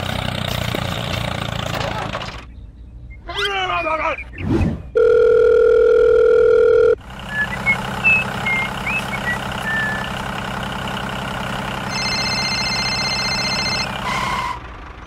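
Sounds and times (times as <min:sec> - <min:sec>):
tractor engine running: 0:00.0 - 0:02.7, 0:05.0 - 0:15.0
telephone ring tone: 0:05.0 - 0:07.0, 0:11.9 - 0:13.9.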